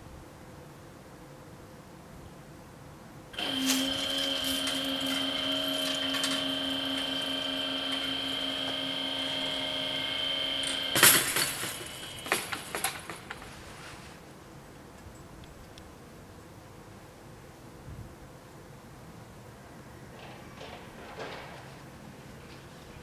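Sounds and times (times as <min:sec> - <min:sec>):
electric motors whining: 0:03.4 - 0:13.3
barrier clunk: 0:03.4 - 0:13.5
barriers rattling and knocking: 0:10.6 - 0:13.6.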